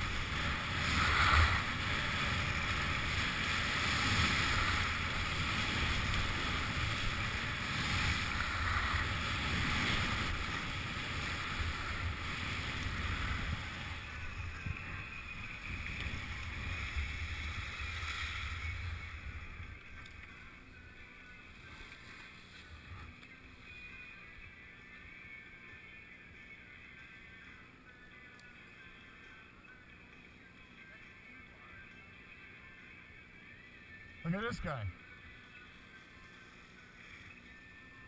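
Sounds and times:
skis scraping over snow: 0.0 - 19.9, 21.5 - 23.2.

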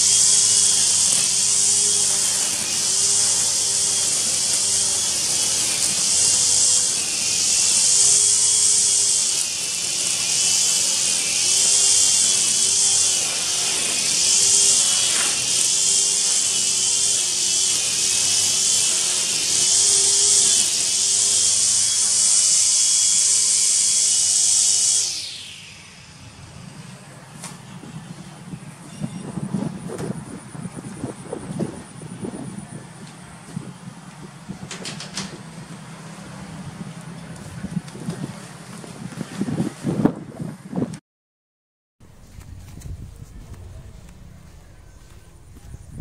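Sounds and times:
grass trimmer whining: 0.0 - 39.4.

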